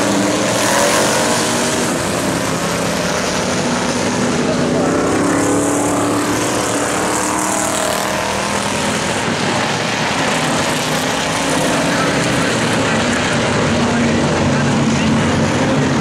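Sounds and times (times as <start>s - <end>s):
race car engines: 0.0s - 16.0s.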